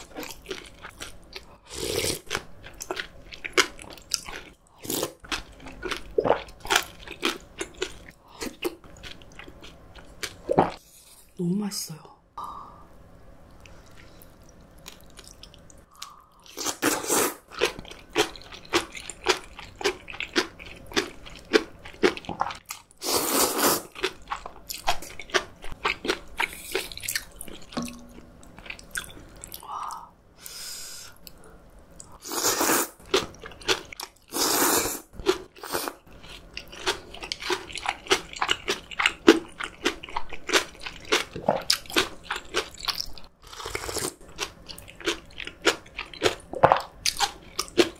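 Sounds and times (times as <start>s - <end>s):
wet crunchy chewing: 35.2s - 47.9s.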